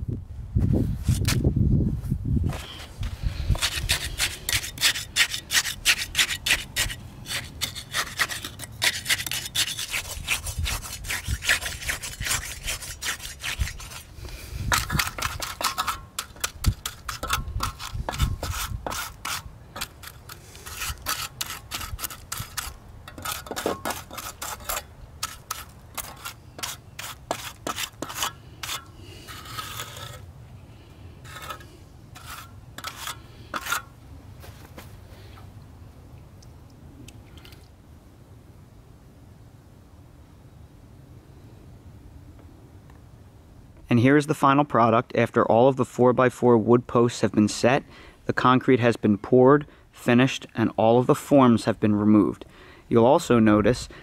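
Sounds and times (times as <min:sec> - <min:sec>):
trowel scraping wet concrete: 0:03.5 - 0:30.3, 0:31.2 - 0:33.9.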